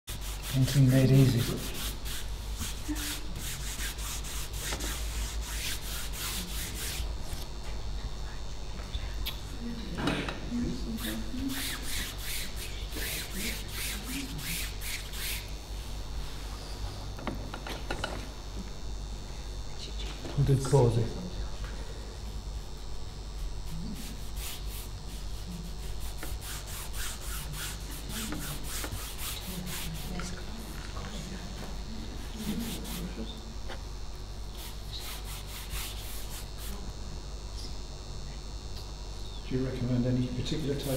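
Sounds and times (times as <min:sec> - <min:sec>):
cloth rag rubbing paper: 0:00.1 - 0:07.3, 0:11.0 - 0:16.5, 0:23.4 - 0:30.8, 0:32.2 - 0:33.2, 0:34.5 - 0:36.8.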